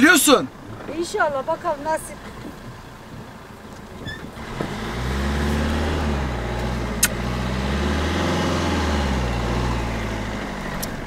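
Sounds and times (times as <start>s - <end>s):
car engine running: 0.0s - 11.0s
sharp click: 7.0s - 7.2s.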